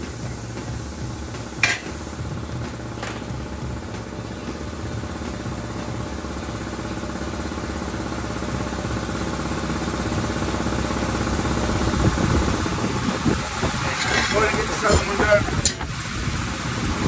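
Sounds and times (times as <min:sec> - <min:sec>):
motor pulsing steadily: 0:00.0 - 0:17.0.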